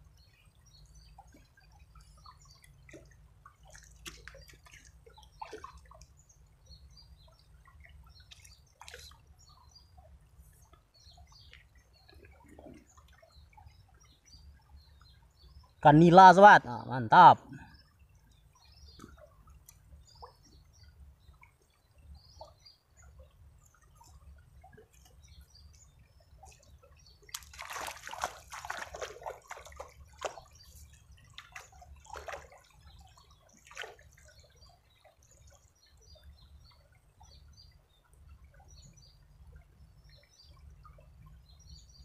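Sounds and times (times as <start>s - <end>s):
water sloshing and splashing: 0.0s - 15.2s, 22.4s - 37.4s
river water trickling over stones: 0.0s - 42.0s.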